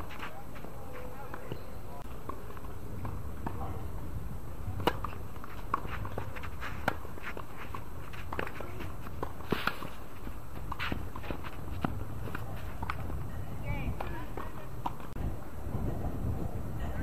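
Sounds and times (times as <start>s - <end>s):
tennis ball hits: 4.7s - 10.0s.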